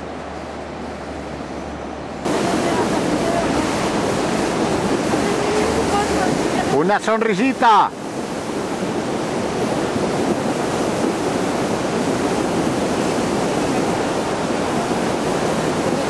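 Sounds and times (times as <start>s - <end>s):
river water rushing: 0.0s - 16.0s.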